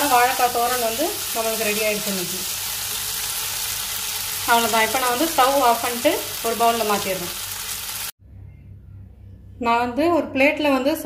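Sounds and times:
food sizzling in a pan: 0.0s - 8.2s.

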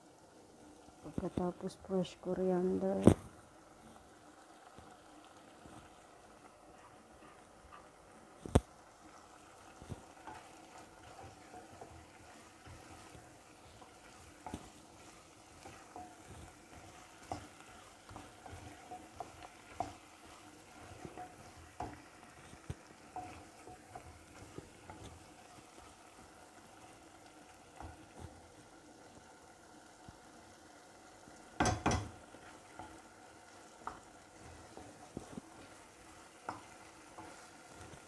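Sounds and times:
faint sizzle of frying: 0.0s - 38.0s
wooden spoon knocking on pot: 9.8s - 27.0s, 31.5s - 33.0s, 33.6s - 38.0s.

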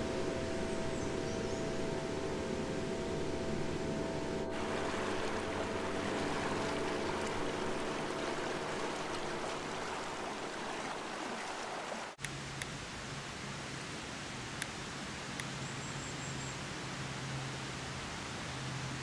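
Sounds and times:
faint held tones: 0.0s - 11.0s
low hum: 0.0s - 11.7s
steady rushing noise: 0.0s - 12.1s.

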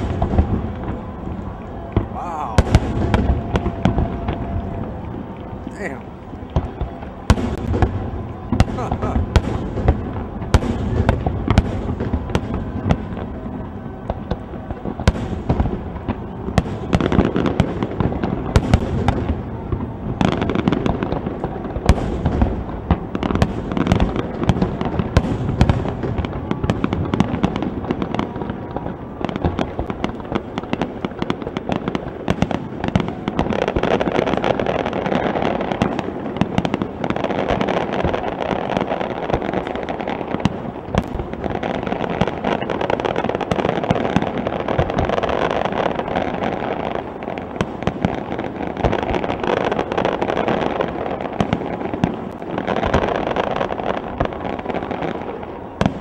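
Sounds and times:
fireworks bangs: 0.0s - 56.0s
crackle of small pops: 14.0s - 56.0s.

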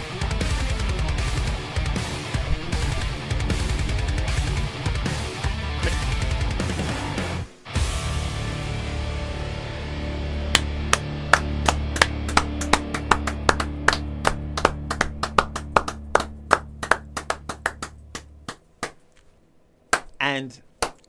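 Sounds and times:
person clapping: 10.5s - 19.1s, 19.9s - 20.2s, 20.8s - 21.0s.

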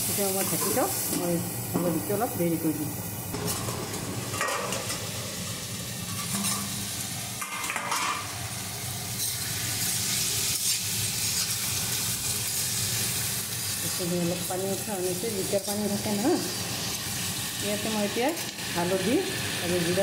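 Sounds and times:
vegetables sizzling in oil: 0.0s - 20.0s.

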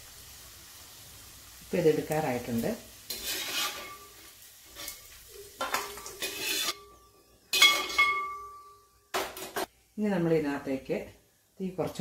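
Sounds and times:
light sizzle: 0.0s - 12.0s
metal spoon scraping a pot: 3.1s - 8.5s.

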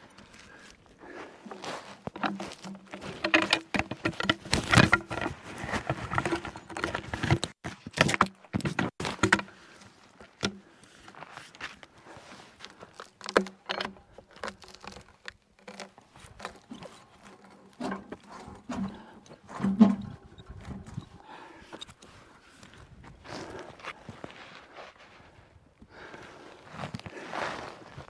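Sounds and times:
steel hook knocking and scraping log: 1.5s - 11.2s, 13.0s - 22.1s.

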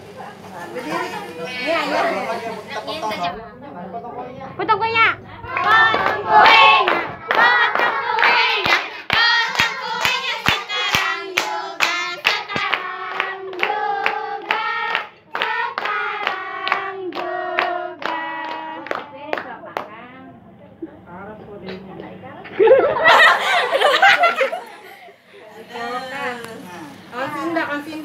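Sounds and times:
group singing: 5.4s - 19.1s
handclaps: 5.6s - 19.9s.

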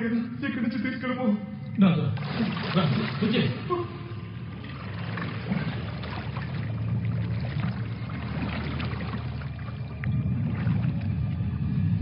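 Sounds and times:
water lapping and trickling: 1.5s - 12.0s
low rumble: 3.6s - 12.0s.

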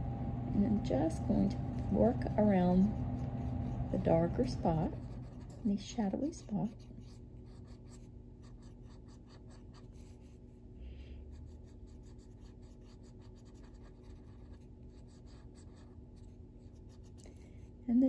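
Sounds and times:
pencil scratching on paper: 3.2s - 10.4s, 11.3s - 17.2s.

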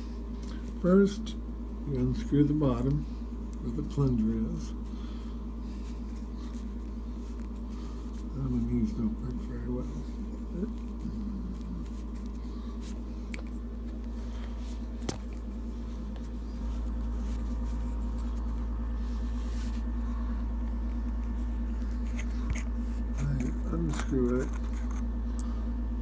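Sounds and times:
hands rubbing near microphone: 9.3s - 24.9s.

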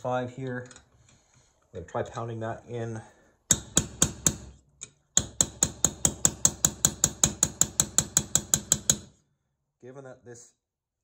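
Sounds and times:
small hammer tapping metal: 3.5s - 9.2s.

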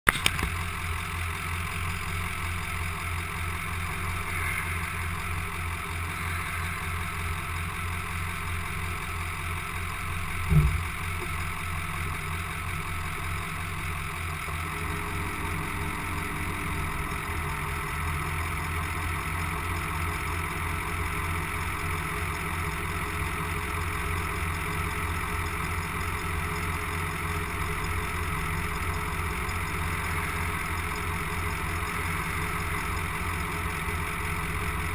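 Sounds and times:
diesel truck idling: 0.1s - 34.9s
loud thump: 10.5s - 11.0s.

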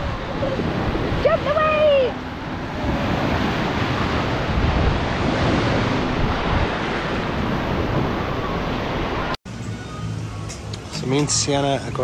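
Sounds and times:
surf washing up beach: 0.0s - 9.4s
wind buffeting microphone: 0.0s - 9.4s.

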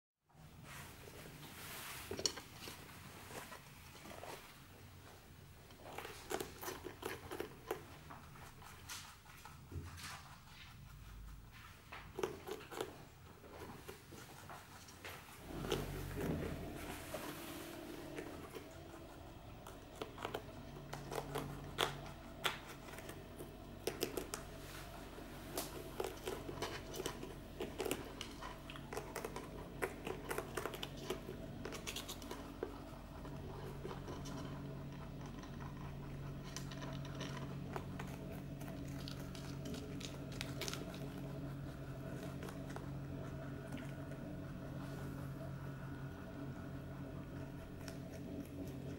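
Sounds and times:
steady low hum: 0.3s - 48.9s
rabbits crunching chili pepper: 1.8s - 48.9s.

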